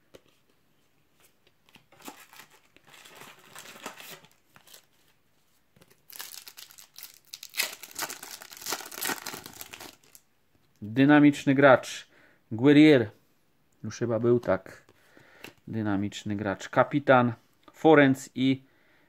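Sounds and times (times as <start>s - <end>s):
foil sachets crinkling: 2.0s - 5.0s, 5.9s - 10.2s
foil sachet tearing open: 6.1s - 10.2s.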